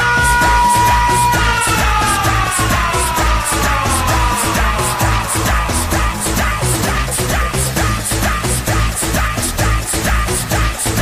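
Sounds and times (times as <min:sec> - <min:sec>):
long held high note: 0:00.0 - 0:08.1
dance-pop music: 0:00.0 - 0:11.0.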